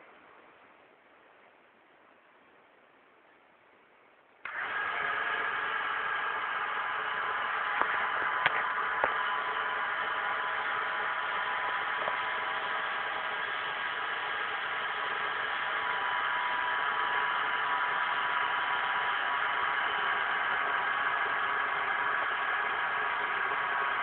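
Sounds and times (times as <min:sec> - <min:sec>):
sharp clicks: 0:04.4 - 0:05.1, 0:05.8 - 0:21.0
small electric motors whirring: 0:04.5 - 0:24.0.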